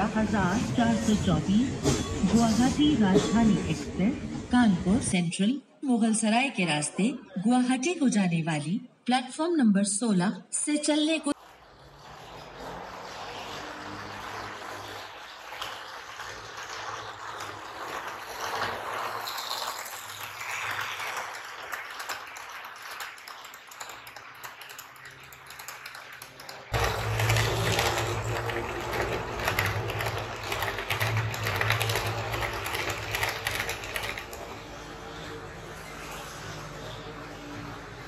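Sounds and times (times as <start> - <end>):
model train wheels clicking: 11.4 - 34.7
low motor hum: 26.7 - 38.0.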